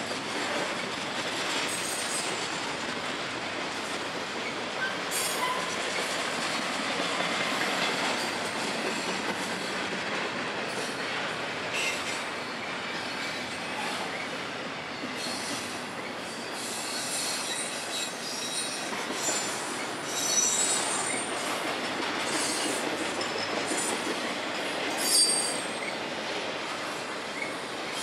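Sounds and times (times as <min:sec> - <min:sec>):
train wheels rumbling on rails: 0:00.0 - 0:28.0
high-pitched wheel squeals: 0:25.0 - 0:26.0.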